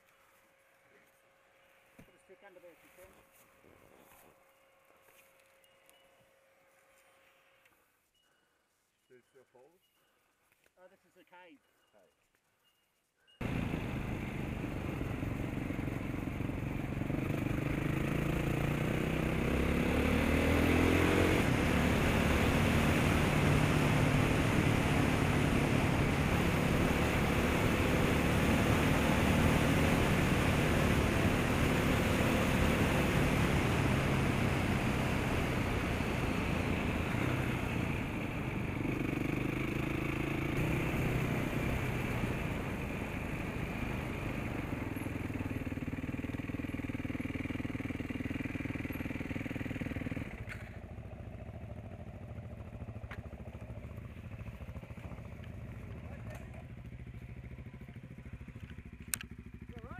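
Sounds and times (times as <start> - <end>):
motorcycle engine accelerating: 13.4 - 59.9.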